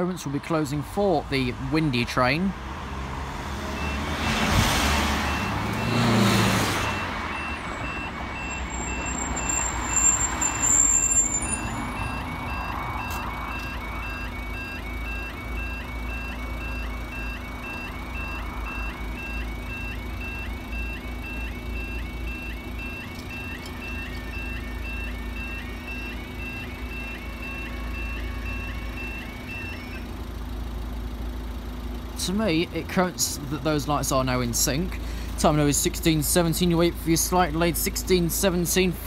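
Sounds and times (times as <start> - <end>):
cars driving over crossing: 0.0 - 39.0
level crossing two-tone alarm: 3.7 - 30.5.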